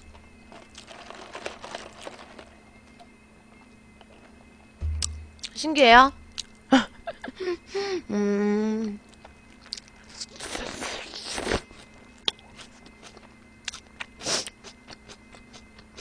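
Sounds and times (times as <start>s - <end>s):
foil wrapper crinkling: 0.5s - 2.5s.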